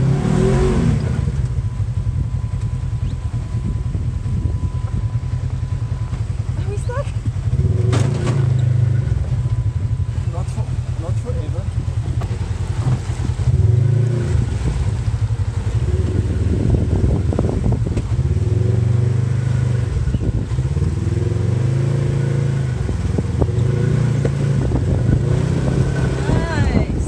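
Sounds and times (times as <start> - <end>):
buggy engine revving: 0.0 - 27.0
knocks and rattles on rough terrain: 4.3 - 18.4.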